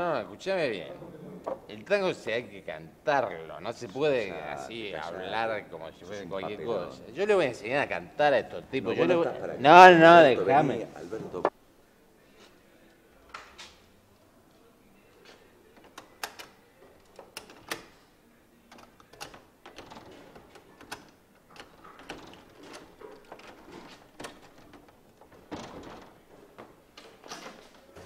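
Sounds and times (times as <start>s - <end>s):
door latch and handle clattering: 19.0s - 26.2s.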